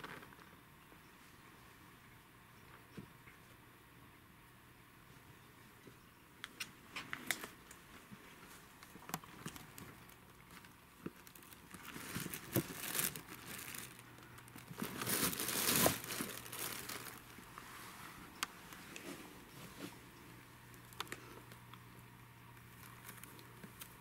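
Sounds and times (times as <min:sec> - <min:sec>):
plastic bags crinkling: 0:09.2 - 0:17.6, 0:22.7 - 0:24.0.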